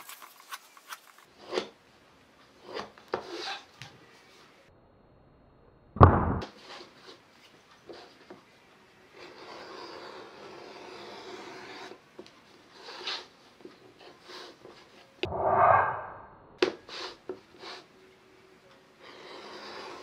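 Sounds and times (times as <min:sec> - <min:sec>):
edge beveler scraping leather: 0:09.2 - 0:12.0, 0:19.0 - 0:20.0.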